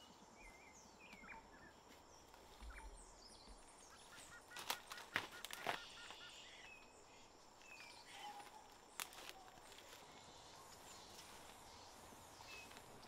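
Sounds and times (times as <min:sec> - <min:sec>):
faint bird chirps: 0:00.0 - 0:13.0
footsteps on dry leaves: 0:04.1 - 0:06.4, 0:07.6 - 0:13.0.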